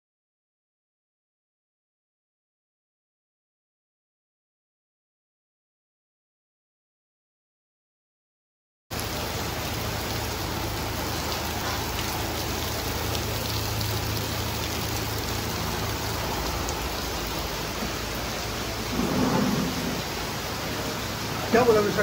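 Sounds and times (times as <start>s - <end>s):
heavy rain pouring: 8.9s - 22.0s.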